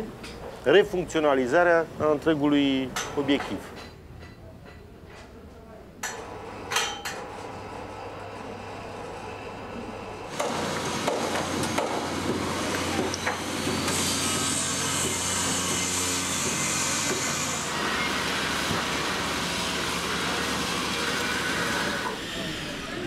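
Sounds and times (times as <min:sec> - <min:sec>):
steady machine hum: 0:06.3 - 0:23.0
tools and timber knocking: 0:10.3 - 0:14.0, 0:14.9 - 0:17.4.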